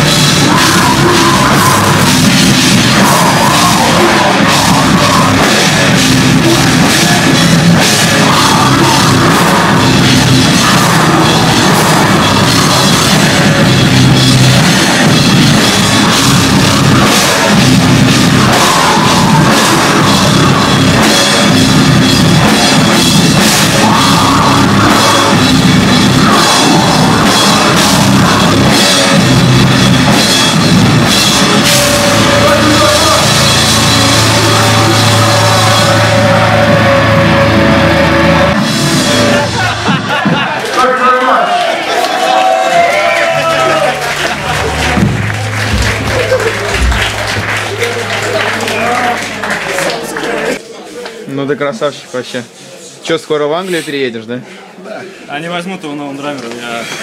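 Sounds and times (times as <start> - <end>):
drum kit with cymbals: 0.0 - 40.5
electric guitar: 0.0 - 40.6.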